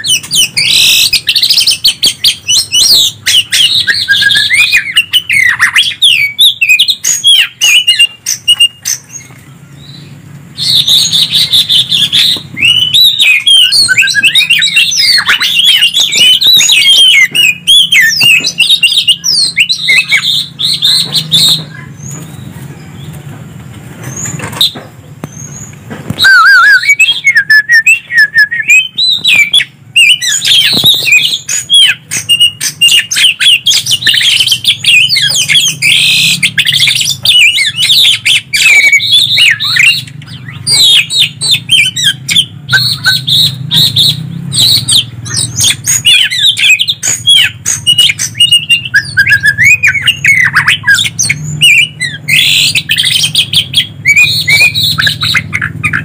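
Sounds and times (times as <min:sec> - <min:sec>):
songbirds chirping and whistling: 0:00.0 - 0:56.0.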